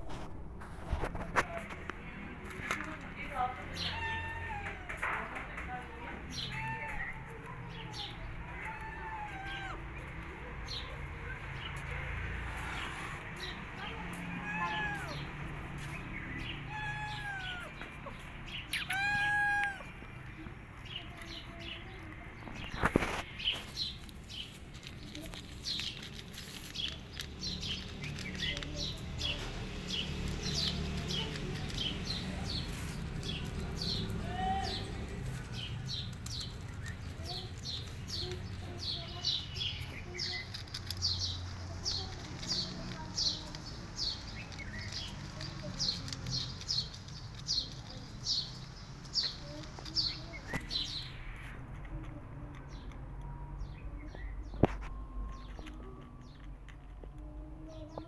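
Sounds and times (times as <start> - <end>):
small birds chirping: 0.8 - 58.0
cat meowing: 3.8 - 5.0, 8.4 - 9.9, 14.3 - 15.2, 16.6 - 17.8, 18.7 - 19.9.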